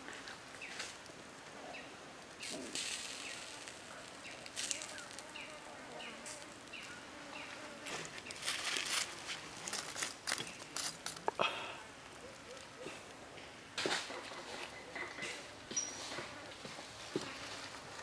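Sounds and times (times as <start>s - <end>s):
hands rustling dry leaves: 0.0s - 13.6s.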